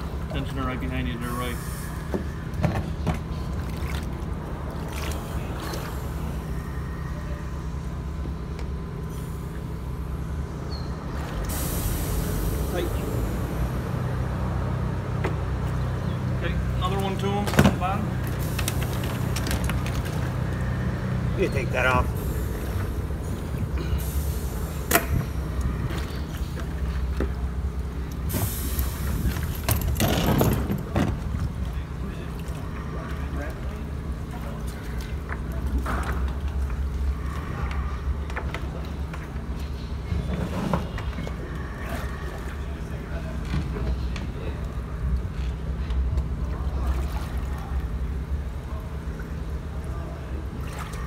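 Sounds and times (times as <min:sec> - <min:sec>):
steady low rumble: 0:00.0 - 0:51.0
river water splashing: 0:03.2 - 0:07.2, 0:46.2 - 0:51.0.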